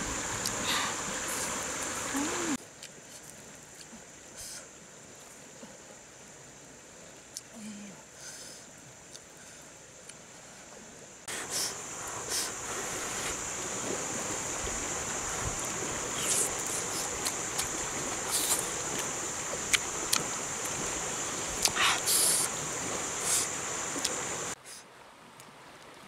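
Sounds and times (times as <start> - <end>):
forest insects droning: 0.0 - 24.8
river water running: 0.0 - 26.0
mouth smacking while eating: 21.6 - 22.5.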